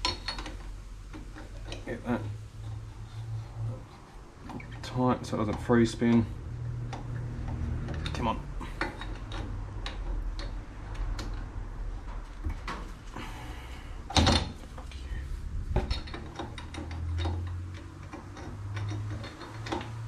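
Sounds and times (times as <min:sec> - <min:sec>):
metal clicks and knocks: 0:00.0 - 0:02.8, 0:03.8 - 0:13.0, 0:14.0 - 0:15.0, 0:15.7 - 0:20.0.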